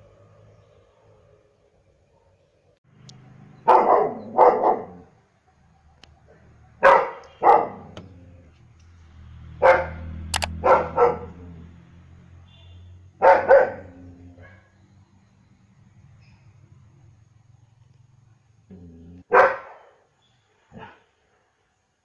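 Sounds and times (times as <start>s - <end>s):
dog barking: 3.6s - 5.1s, 6.8s - 8.0s, 9.6s - 11.4s, 13.2s - 14.7s, 19.2s - 20.1s, 20.7s - 21.0s.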